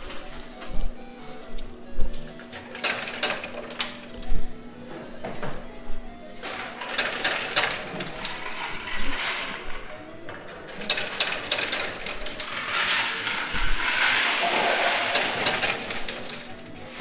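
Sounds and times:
coins clinking in coin pusher: 2.2s - 4.3s, 6.4s - 17.0s.

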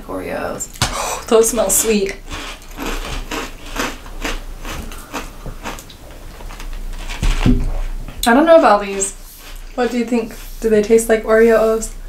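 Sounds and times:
cereal crunching and chewing: 1.5s - 7.2s.

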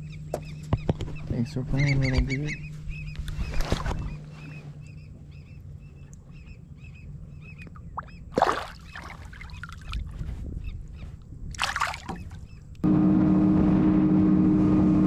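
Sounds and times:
water splashing: 7.7s - 10.2s, 11.5s - 12.5s.

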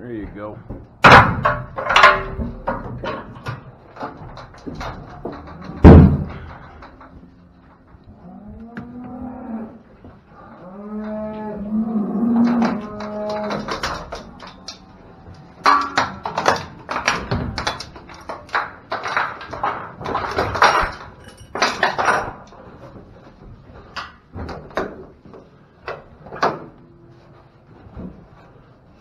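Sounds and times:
metal gate clanking and rattling: 0.2s - 8.1s, 12.2s - 23.0s.

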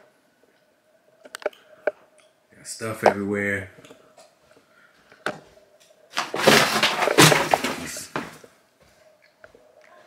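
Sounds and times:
packaging crinkling: 6.2s - 8.1s.

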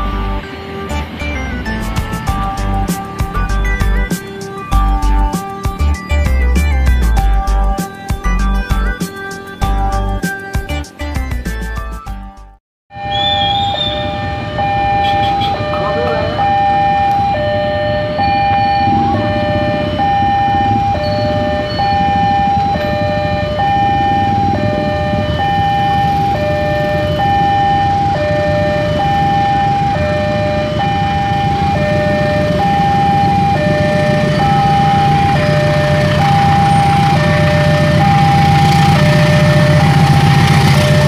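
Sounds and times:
two-tone crossing alarm: 12.9s - 41.0s.

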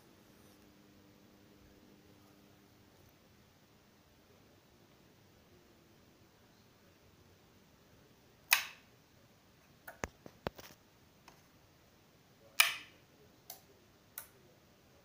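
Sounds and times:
push-button switch clicks: 12.6s - 12.9s.

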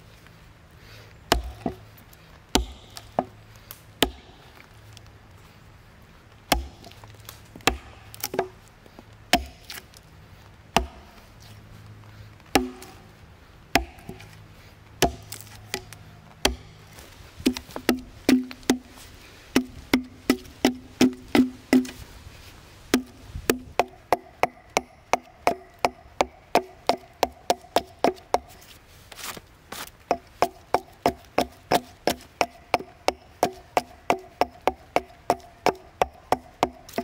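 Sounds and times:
axe chopping into log: 1.3s - 1.8s, 2.5s - 3.4s, 4.0s - 4.4s, 6.5s - 7.0s, 7.6s - 8.6s, 9.3s - 9.8s, 10.8s - 11.2s, 12.5s - 13.0s, 13.8s - 14.3s, 15.0s - 16.7s, 17.4s - 22.0s, 22.9s - 28.7s, 29.8s - 37.0s.

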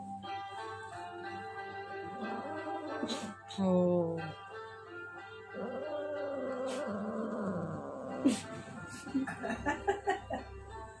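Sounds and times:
background music: 0.0s - 11.0s
cat yowling: 2.2s - 3.3s, 5.5s - 8.5s.

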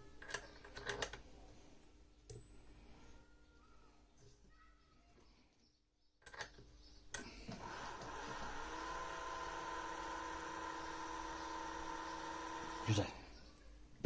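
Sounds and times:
electric motor whine: 7.5s - 13.0s.

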